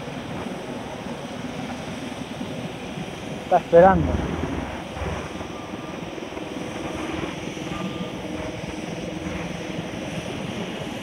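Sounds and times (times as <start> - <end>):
engine droning: 3.3 - 10.6.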